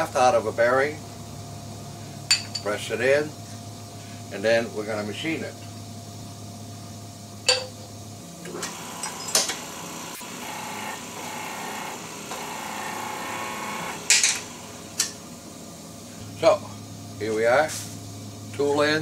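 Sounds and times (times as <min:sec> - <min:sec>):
shop press mechanical whine: 0:07.3 - 0:19.0.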